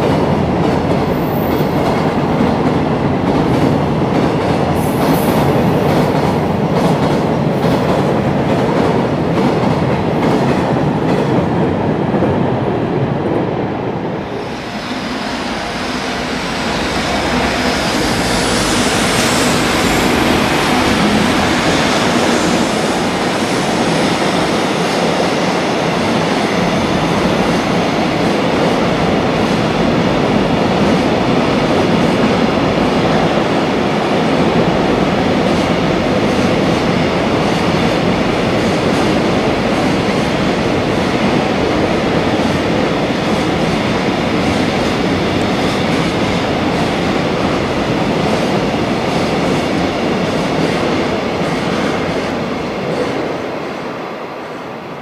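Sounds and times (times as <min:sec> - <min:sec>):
train wagons rumbling and clacking: 0:00.0 - 0:54.3
hiss of wheels on rail: 0:04.7 - 0:06.3, 0:14.2 - 0:28.6.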